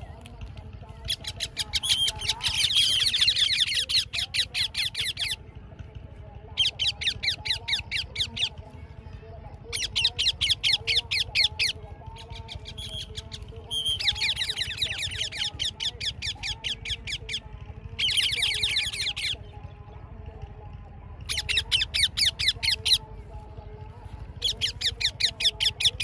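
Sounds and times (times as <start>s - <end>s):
parakeets screeching: 0.9s - 5.4s, 6.6s - 8.6s, 9.7s - 19.4s, 21.3s - 23.1s, 24.4s - 26.0s.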